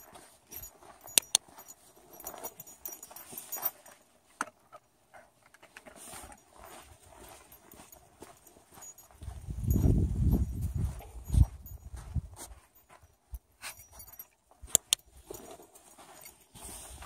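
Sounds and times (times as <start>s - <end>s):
dog collar tags jingling: 0.0s - 4.2s, 6.1s - 17.0s
sharp clicks: 1.1s - 1.4s, 14.7s - 15.0s
footsteps crunching on snow: 15.1s - 17.0s.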